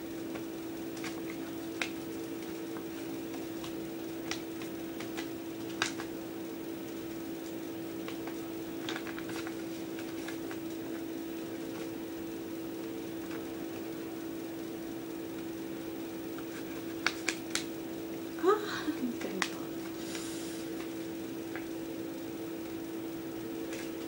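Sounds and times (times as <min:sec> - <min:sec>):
electric fan humming: 0:00.0 - 0:24.0
paper crackling: 0:00.2 - 0:06.2, 0:07.4 - 0:12.0, 0:12.8 - 0:14.0, 0:16.3 - 0:17.8, 0:18.8 - 0:21.8, 0:23.6 - 0:24.0.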